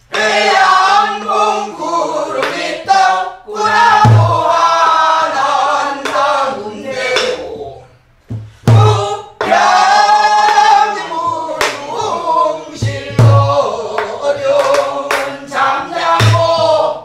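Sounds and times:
group of voices singing: 0:00.0 - 0:17.0
deep barrel drum strokes: 0:03.7 - 0:04.6, 0:08.3 - 0:09.6.

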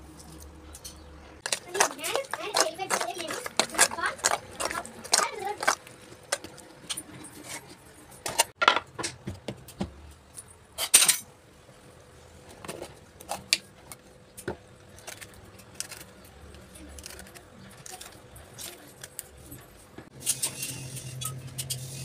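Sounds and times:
spoon scraping a steel bowl: 0:00.3 - 0:06.0, 0:20.2 - 0:22.0.

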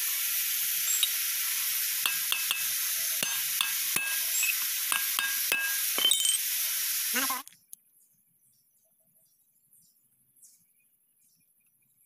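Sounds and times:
steady hiss: 0:00.0 - 0:07.5
hammer tapping steel punch: 0:02.0 - 0:06.2.

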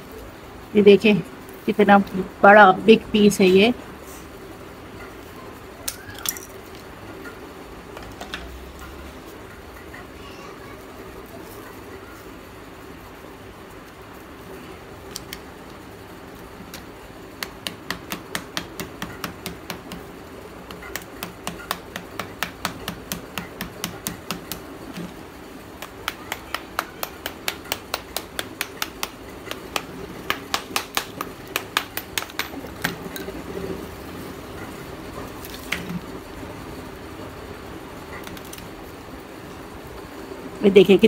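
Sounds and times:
small hammer tapping clay: 0:16.7 - 0:20.1, 0:20.7 - 0:25.1, 0:25.8 - 0:33.0.

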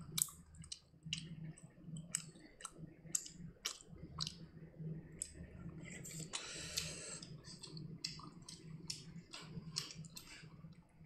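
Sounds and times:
faint low hum: 0:00.0 - 0:11.0
chewing mouth sounds: 0:02.0 - 0:04.5, 0:06.0 - 0:10.6.

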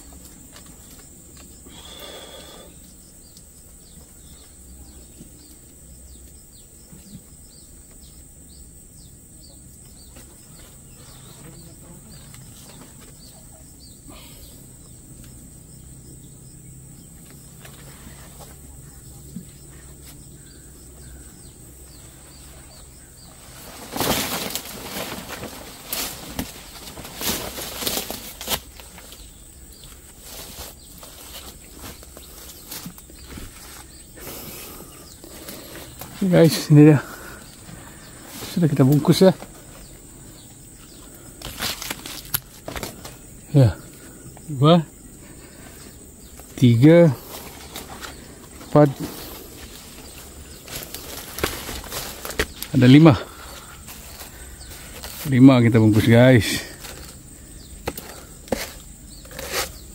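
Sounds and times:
bird chirps: 0:00.0 - 0:27.5, 0:59.0 - 0:59.9.

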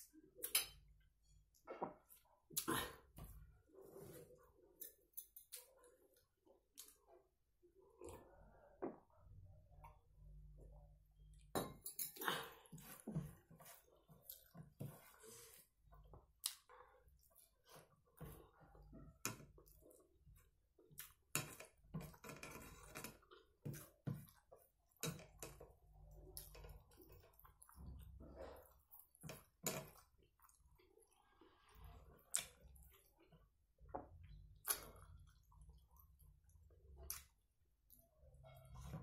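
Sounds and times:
person chewing food: 0:12.1 - 0:38.1
hand mixing food on plate: 0:12.6 - 0:34.3.

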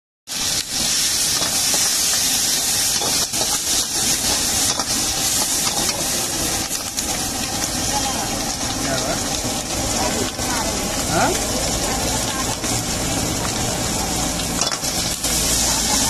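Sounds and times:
oil sizzling in a wok: 0:00.3 - 0:16.0
metal ladle scraping a wok: 0:00.5 - 0:06.1.

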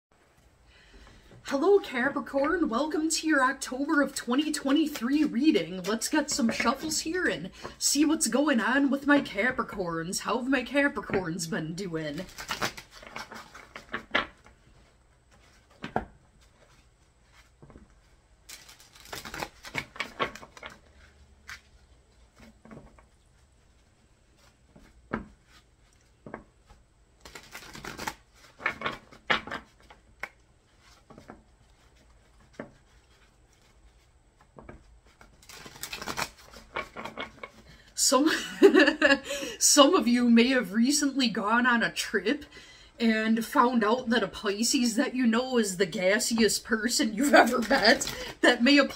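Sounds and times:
cards being shuffled: 0:04.0 - 0:08.3, 0:12.1 - 0:37.9, 0:47.1 - 0:48.9.

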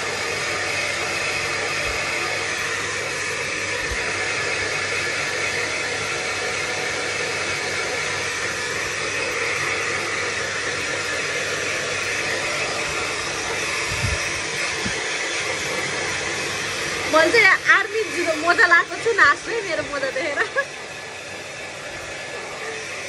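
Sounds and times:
hair dryer blowing: 0:00.0 - 0:23.0.

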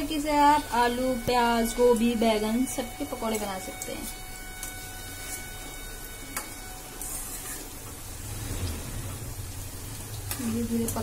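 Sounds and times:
food sizzling in hot oil: 0:00.0 - 0:11.0
metal spoon stirring: 0:02.2 - 0:07.9.

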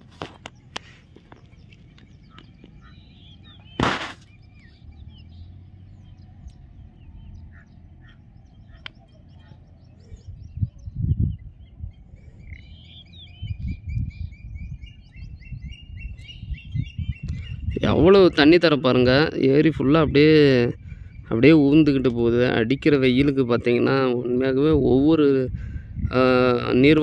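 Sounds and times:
low rumbles: 0:00.0 - 0:27.0
small birds chirping: 0:00.0 - 0:27.0
sharp knock: 0:03.8 - 0:04.3.

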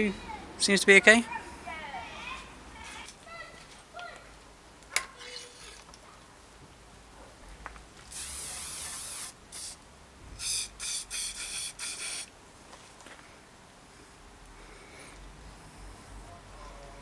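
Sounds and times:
aerosol spray hissing: 0:08.1 - 0:09.8, 0:10.4 - 0:12.3.

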